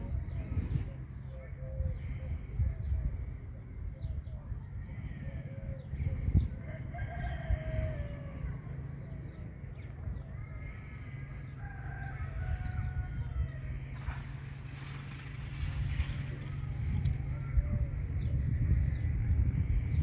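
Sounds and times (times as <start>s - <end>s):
chickens calling: 0.0s - 20.0s
steady low rumble: 0.0s - 20.0s.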